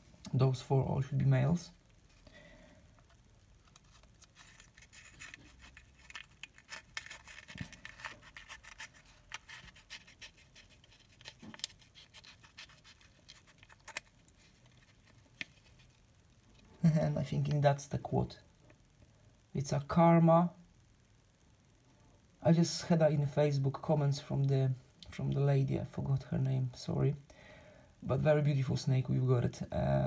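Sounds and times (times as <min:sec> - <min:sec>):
fingers scratching on eggshell: 0:03.8 - 0:16.0.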